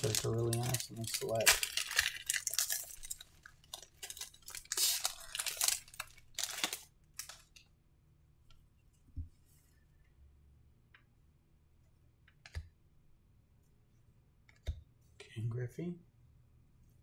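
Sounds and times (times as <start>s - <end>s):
foil wrapper tearing and crinkling: 0.0s - 7.6s.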